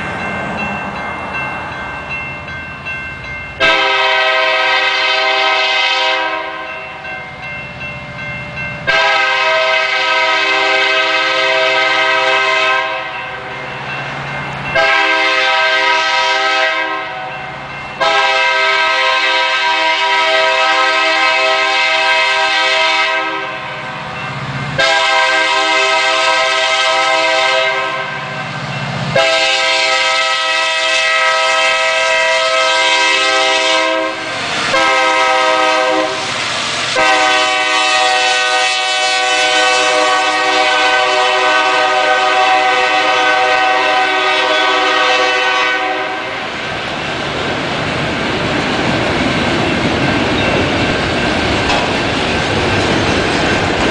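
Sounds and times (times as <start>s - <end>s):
locomotive air horn blasts: 3.6s - 6.7s, 8.9s - 13.4s, 14.8s - 17.3s, 18.0s - 23.8s, 24.8s - 28.4s, 29.1s - 46.4s
freight cars rumbling and clattering: 46.8s - 53.9s.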